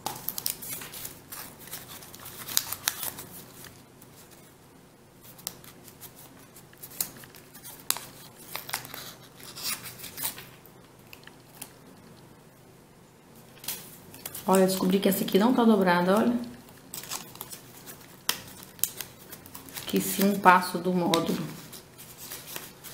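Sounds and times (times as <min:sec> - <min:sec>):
paper rustling and crinkling: 0:00.0 - 0:04.5, 0:05.2 - 0:11.8, 0:16.2 - 0:22.9.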